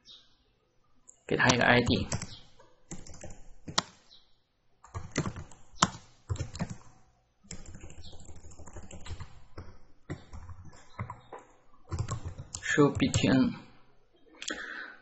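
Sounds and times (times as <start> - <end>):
computer keyboard typing: 1.4 - 4.1, 4.8 - 13.6.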